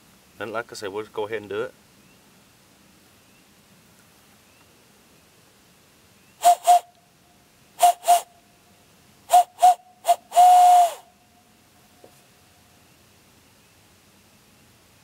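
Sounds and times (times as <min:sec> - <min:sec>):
hand-blown owl hoots: 0:06.4 - 0:06.9, 0:07.8 - 0:08.3, 0:09.3 - 0:11.1.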